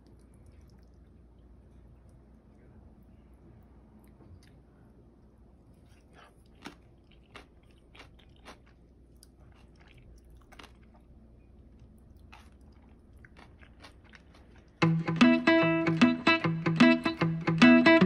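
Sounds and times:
chewing noodles: 0.0 - 2.4, 5.6 - 14.8
guitar music: 14.8 - 18.0.

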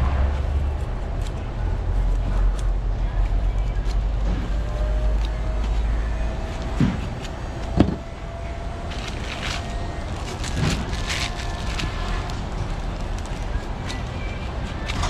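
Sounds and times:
low rumble: 0.0 - 13.8
plastic bag rustling: 6.4 - 15.0.

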